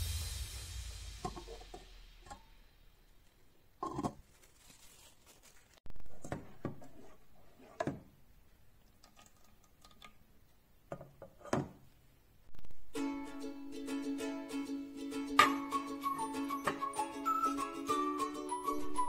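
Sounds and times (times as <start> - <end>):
metal spoon scraping a pan: 1.2 - 2.4.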